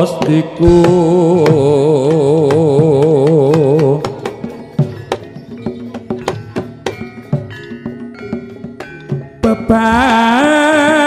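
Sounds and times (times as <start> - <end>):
person singing with vibrato: 0.0 - 5.2, 9.4 - 11.0
ringing metallophone notes: 0.0 - 11.0
sharp drum strikes: 0.0 - 11.0.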